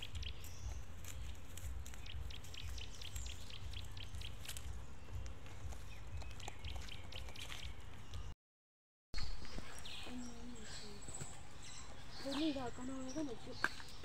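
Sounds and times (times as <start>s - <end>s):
low steady rumble: 0.0s - 8.3s
birds chirping: 0.0s - 8.4s, 9.2s - 14.0s.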